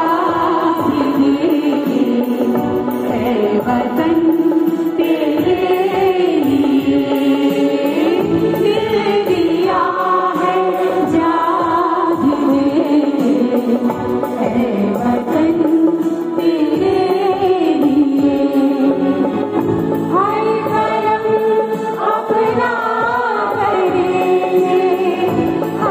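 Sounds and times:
harmonium sustained notes: 0.0 - 25.9
mixed choir singing: 5.0 - 13.5, 20.1 - 25.9.

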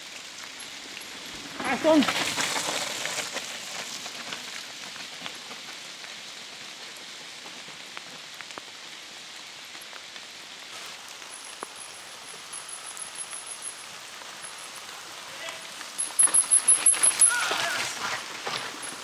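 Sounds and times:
rain hissing in forest: 0.0 - 19.0.

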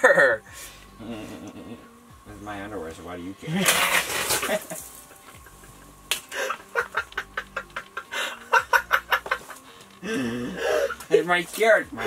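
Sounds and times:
person cackling with laughter: 0.0 - 0.4, 4.2 - 11.1.

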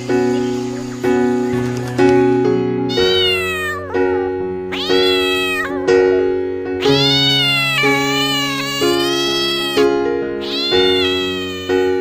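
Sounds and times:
cat meowing: 2.9 - 12.0.

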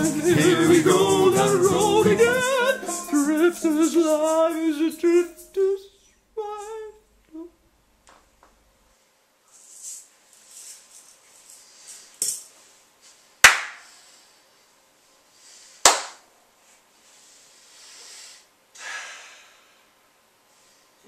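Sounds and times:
shuffling and rustling: 8.9 - 13.3.

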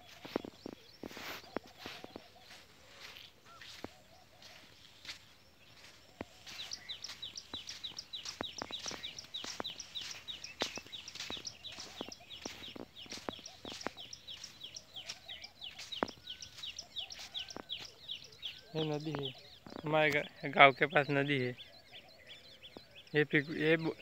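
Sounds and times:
bird chirping rapidly: 5.6 - 24.0.

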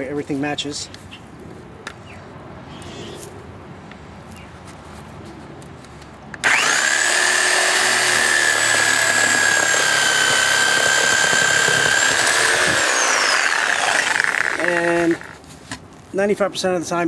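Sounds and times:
reciprocating saw cutting tire: 6.4 - 15.4.

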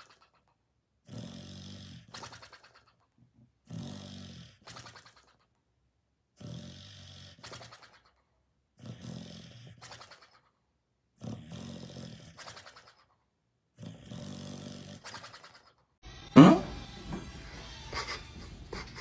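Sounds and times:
dog snoring: 1.0 - 3.0, 3.6 - 5.5, 6.4 - 8.2, 8.8 - 10.5, 11.2 - 13.1, 13.8 - 15.8.

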